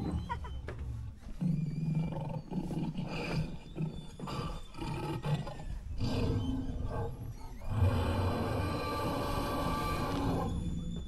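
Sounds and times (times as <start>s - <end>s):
low rough dinosaur roars: 4.3s - 10.7s.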